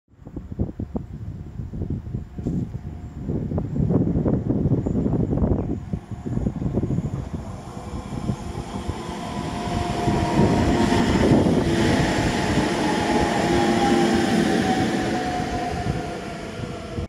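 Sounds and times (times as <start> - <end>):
train wheels rumbling on rails: 1.9 - 17.0
train whine falling in pitch: 6.2 - 17.0.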